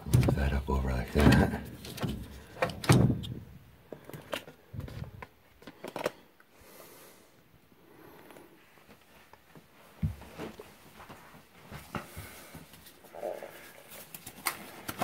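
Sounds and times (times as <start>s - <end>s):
dull thump: 1.2s - 3.5s.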